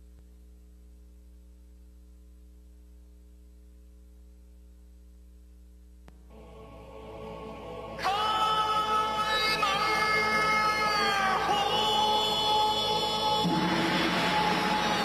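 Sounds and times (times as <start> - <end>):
electrical mains hum: 0.0 - 15.0
quiet music: 6.2 - 15.0.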